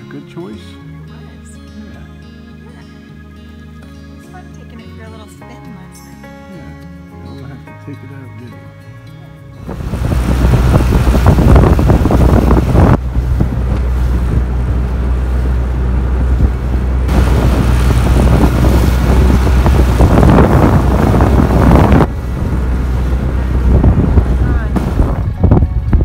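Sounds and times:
outboard motor drone: 9.5s - 26.0s
water rushing past hull: 9.6s - 26.0s
wind buffeting microphone: 9.6s - 26.0s.

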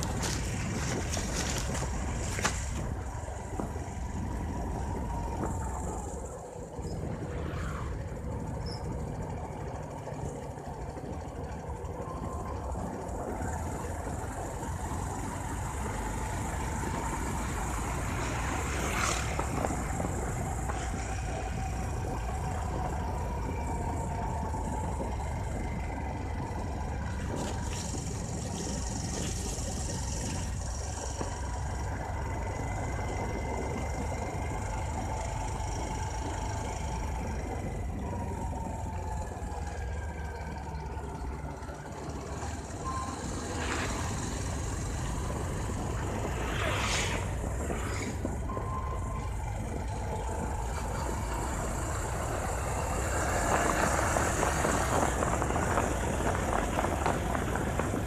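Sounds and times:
motorcycle engine running: 0.0s - 7.3s, 7.9s - 58.0s
wind noise: 0.0s - 9.4s, 42.8s - 58.0s
road noise: 0.0s - 58.0s.

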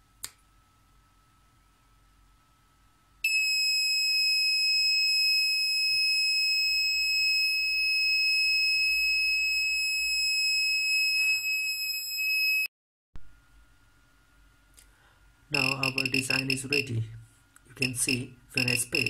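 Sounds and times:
high-pitched buzzer tone: 3.2s - 12.7s, 15.6s - 16.9s, 17.8s - 19.0s.

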